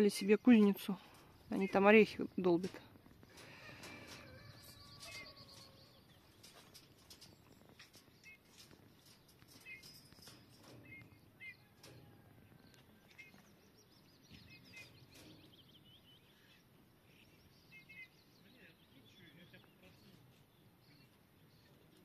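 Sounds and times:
faint bird chirps: 0:03.4 - 0:22.0.

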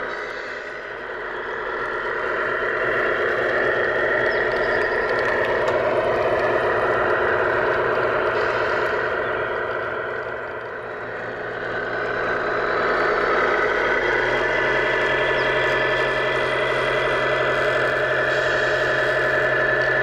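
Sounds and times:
toy truck engine running: 0:00.0 - 0:20.0.

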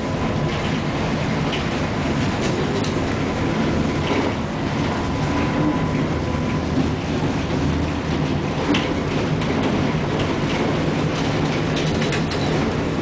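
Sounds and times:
tram wheels rumbling: 0:00.0 - 0:13.0
clicks and rattles: 0:08.2 - 0:12.8.

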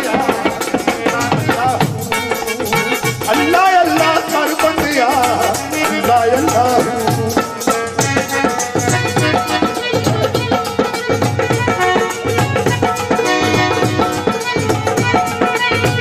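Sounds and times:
person singing: 0:00.0 - 0:08.4
steady percussion rhythm: 0:00.0 - 0:16.0.

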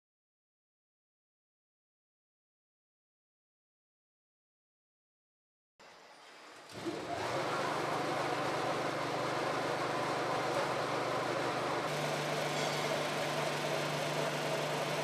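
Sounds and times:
pellet mill humming: 0:06.6 - 0:15.0.

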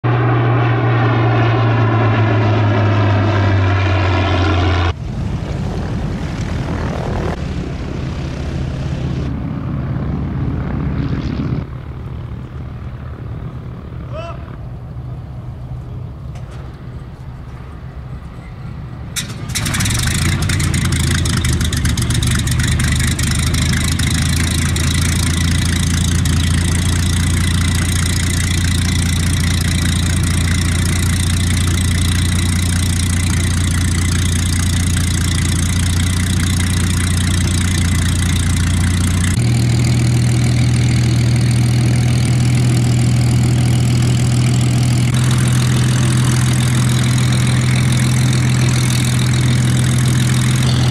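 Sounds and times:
propeller engine starting and idling: 0:00.0 - 0:50.9
engine firing crack: 0:19.1 - 0:40.7.

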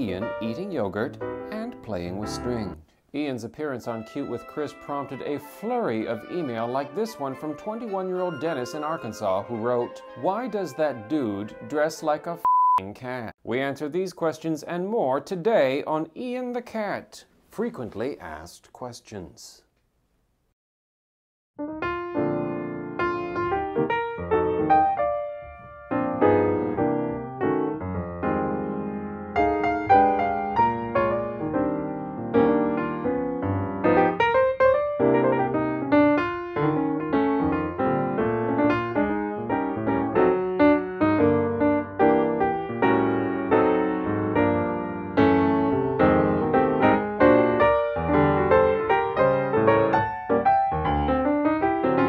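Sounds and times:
piano music: 0:00.0 - 0:02.8, 0:03.6 - 0:12.5, 0:21.6 - 0:52.0.

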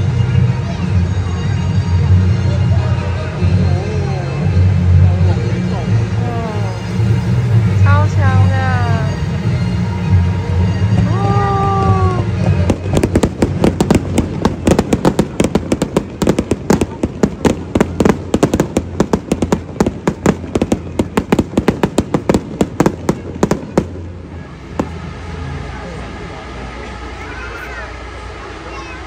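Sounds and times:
music: 0:00.0 - 0:14.0
fireworks crackling: 0:00.0 - 0:29.0.

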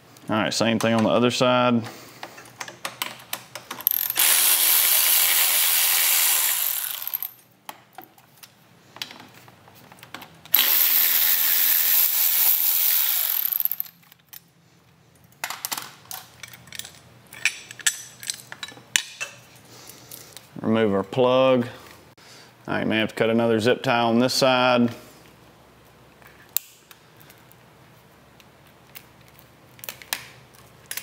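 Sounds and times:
cordless power tool running: 0:03.9 - 0:07.3, 0:10.6 - 0:13.8.

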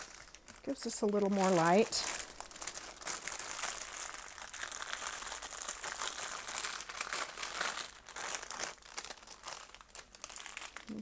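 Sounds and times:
plastic bag crinkling and rustling: 0:00.0 - 0:11.0.

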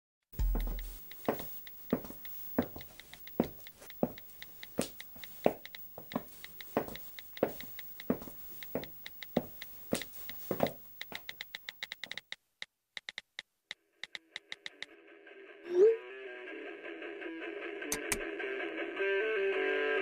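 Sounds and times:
phone keyboard ticks: 0:00.4 - 0:12.4, 0:13.0 - 0:13.5
sandals clicking on hard floor: 0:00.4 - 0:12.4.

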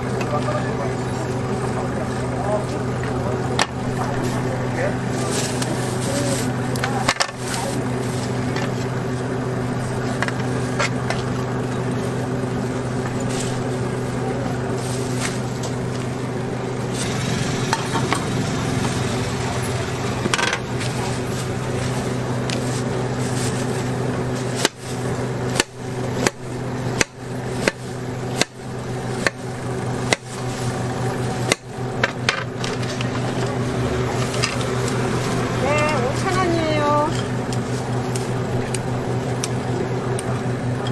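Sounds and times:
steady low hum: 0:00.0 - 0:40.9
knife chopping fruit on cutting board: 0:29.2 - 0:29.4.

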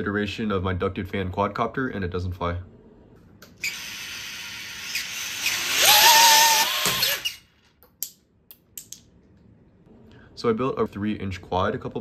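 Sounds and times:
ducted fans whining: 0:04.4 - 0:07.6.

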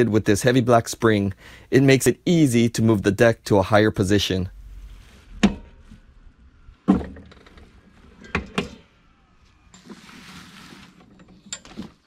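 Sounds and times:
soft hiss: 0:00.6 - 0:06.9.

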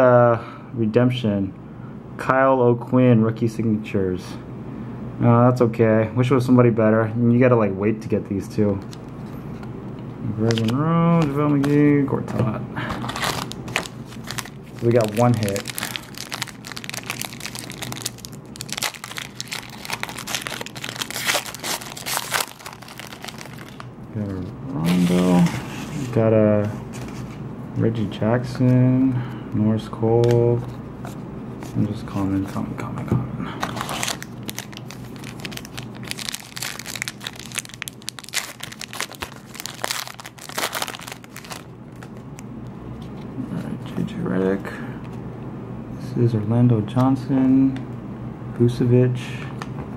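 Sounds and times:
foil wrapper crinkling and tearing: 0:13.0 - 0:23.9, 0:33.6 - 0:42.2.

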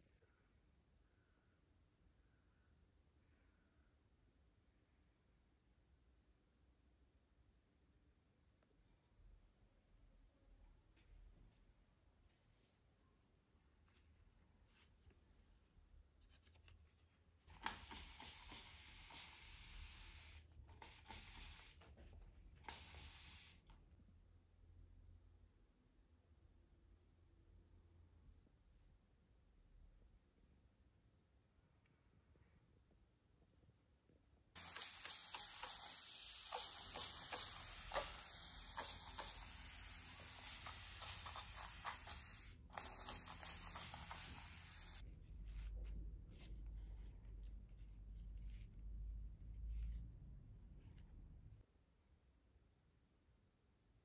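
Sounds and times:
spray bottle hissing: 0:17.5 - 0:21.8, 0:22.6 - 0:23.6, 0:34.6 - 0:45.0.

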